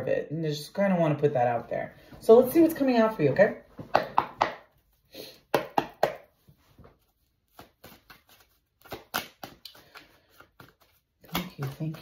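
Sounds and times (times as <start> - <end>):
cards being shuffled: 6.5 - 12.0.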